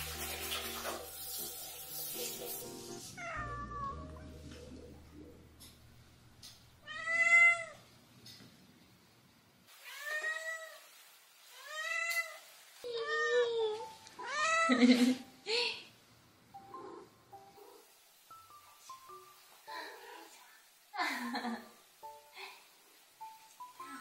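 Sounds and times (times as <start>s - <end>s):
cat meowing: 3.2s - 4.2s, 6.8s - 7.8s, 9.8s - 10.9s.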